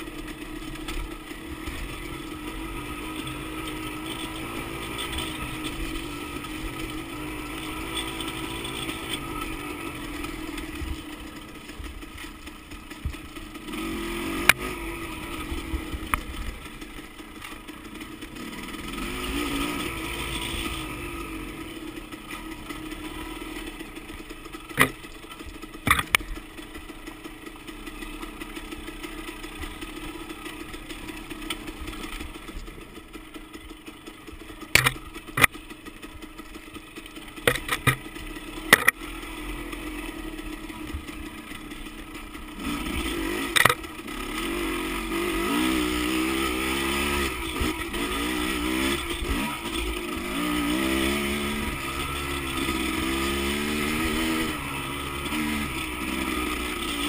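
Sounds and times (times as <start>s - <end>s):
dirt bike engine revving: 0.0s - 57.0s
sharp knocks and clacks: 25.8s - 26.2s, 34.7s - 35.6s, 37.4s - 38.1s.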